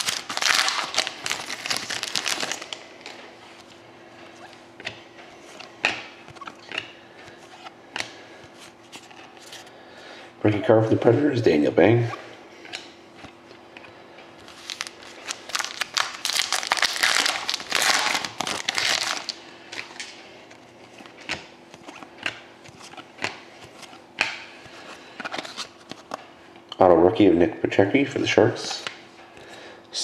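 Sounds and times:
foil wrapper crinkling: 0.0 - 2.8, 14.4 - 20.1
cards being handled: 0.0 - 9.7, 12.7 - 26.3.

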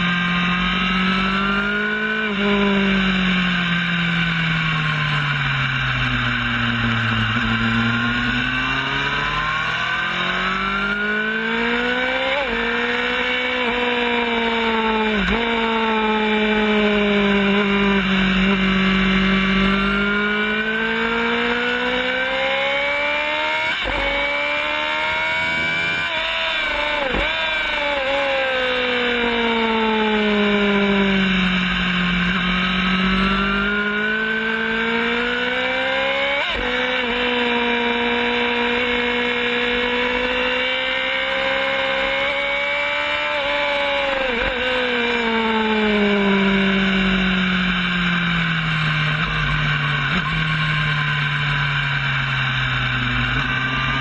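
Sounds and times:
motorcycle engine at speed: 0.0 - 54.0.

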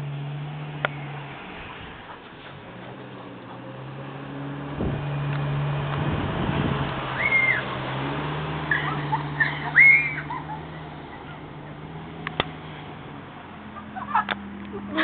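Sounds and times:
pickup truck engine running: 0.0 - 15.0
high-pitched whistle-like cries: 7.2 - 7.7, 8.7 - 10.3.

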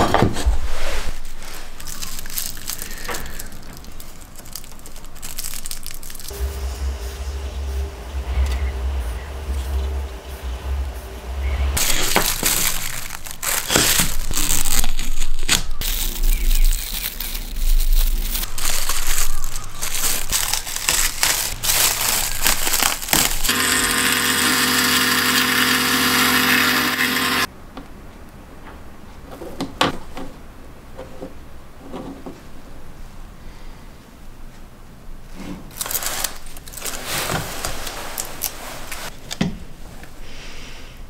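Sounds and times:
plastic wrap crinkling: 1.1 - 6.4, 11.8 - 23.6, 35.7 - 39.2
mechanical whir: 6.3 - 12.2.

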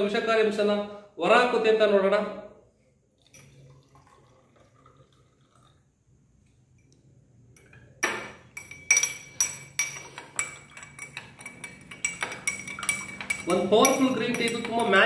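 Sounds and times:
spoon clinking in glass: 3.2 - 3.7, 7.6 - 15.0.

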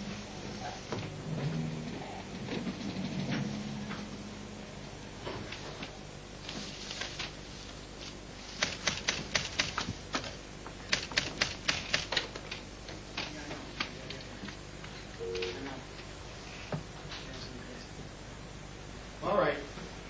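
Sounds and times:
typewriter keys typing: 8.5 - 14.3.

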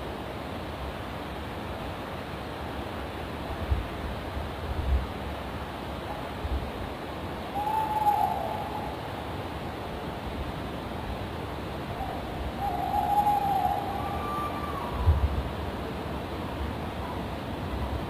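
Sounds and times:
owl hooting: 7.5 - 9.4, 11.9 - 15.3.

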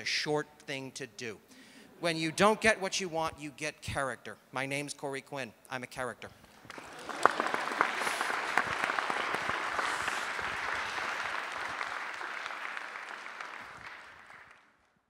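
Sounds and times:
audience applauding: 6.6 - 14.9.

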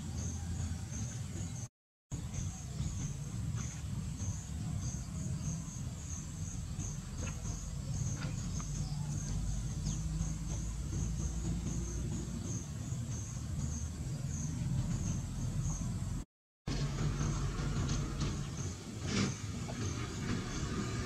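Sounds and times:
crickets chirping: 2.2 - 16.2.

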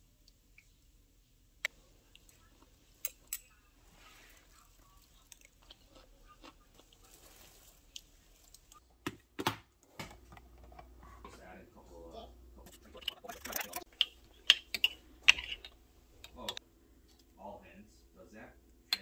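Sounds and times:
faint chewing: 1.6 - 8.8.

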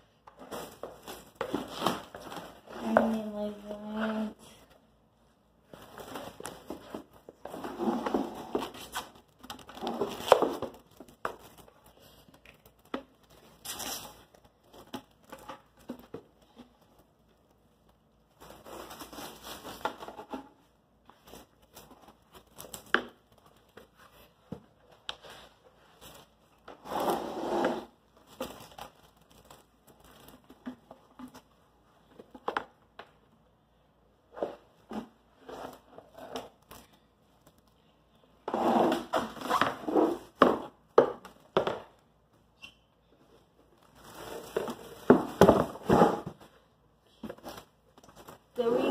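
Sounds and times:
plastic wrap crinkling: 8.1 - 20.3, 28.0 - 31.4, 43.2 - 45.8.

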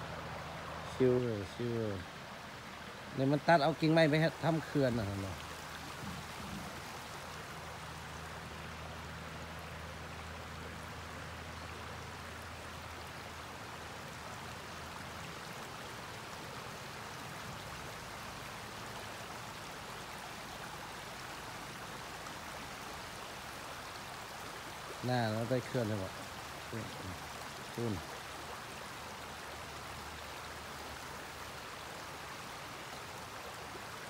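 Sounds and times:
river water flowing: 0.0 - 34.0.

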